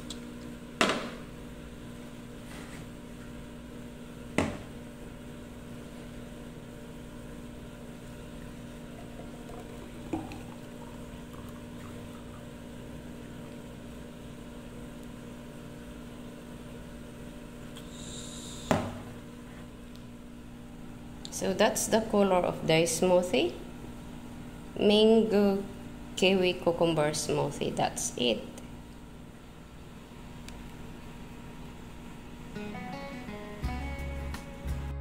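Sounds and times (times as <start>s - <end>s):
steady low hum: 0.0s - 34.9s
smoothie pouring into glass: 8.4s - 13.6s.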